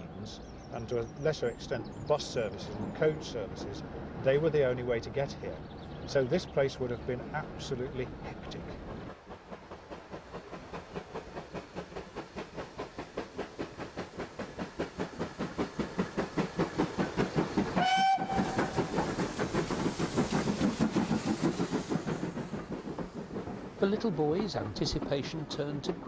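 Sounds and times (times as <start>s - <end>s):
steam locomotive exhaust beats: 5.6s - 26.0s
steam whistle blast: 17.8s - 18.6s.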